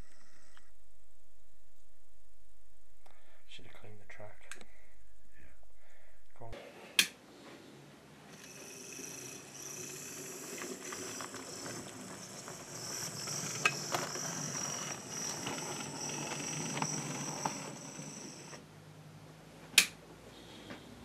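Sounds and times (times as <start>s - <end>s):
model train motor whine: 8.3s - 18.6s
wheels clicking on track: 8.4s - 18.6s.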